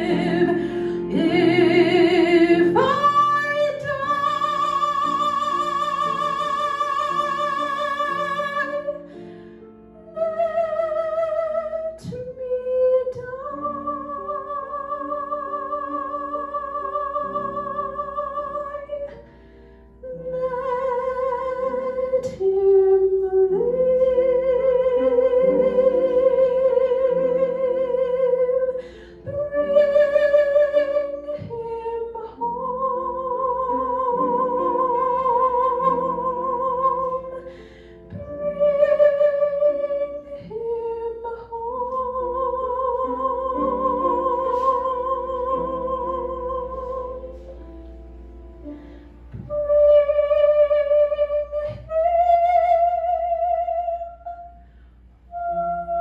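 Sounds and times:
instrumental backing music: 0:00.0 - 0:53.0
woman singing a slow ballad: 0:10.2 - 0:19.2.

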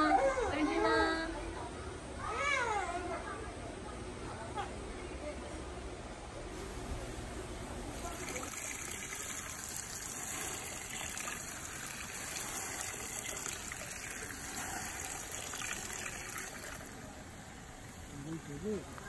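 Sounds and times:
water pouring onto leaves: 0:08.0 - 0:18.8.

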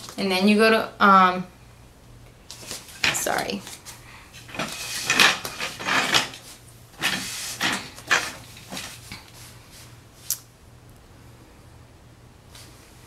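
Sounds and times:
phone handling scrapes and bumps: 0:04.4 - 0:09.0.

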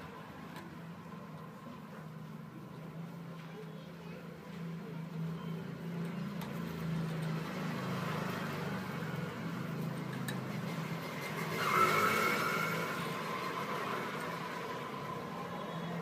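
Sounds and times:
vehicle engine hum: 0:04.8 - 0:16.0.

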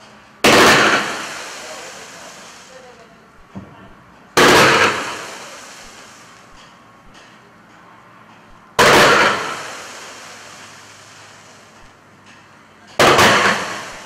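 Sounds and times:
fireworks bangs: 0:00.4 - 0:02.8, 0:04.4 - 0:06.4, 0:08.8 - 0:10.6, 0:13.0 - 0:14.0.

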